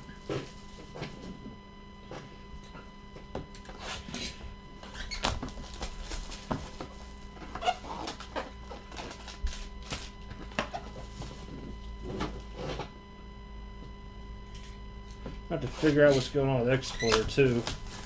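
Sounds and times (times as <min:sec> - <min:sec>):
foil packs crinkling: 0:04.0 - 0:11.5, 0:15.6 - 0:18.0.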